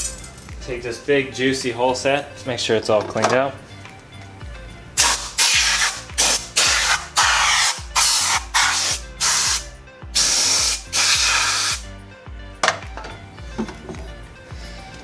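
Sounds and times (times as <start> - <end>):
compressed air blow gun blasts: 5.0 - 11.8.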